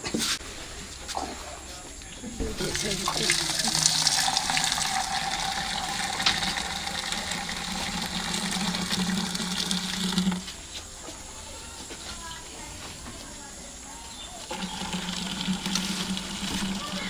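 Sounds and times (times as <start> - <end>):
milk pouring into metal can: 2.4 - 10.6, 14.4 - 17.0.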